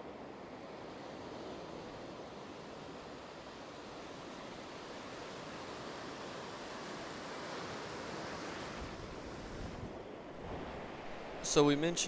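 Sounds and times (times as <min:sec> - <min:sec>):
surf breaking on beach: 0:06.0 - 0:12.0.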